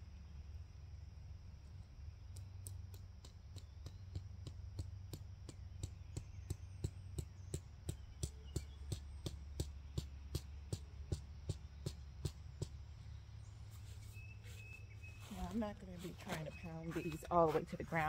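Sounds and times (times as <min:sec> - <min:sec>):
steady low hum: 0:00.0 - 0:18.0
mallet pounding tent stake: 0:02.9 - 0:12.8.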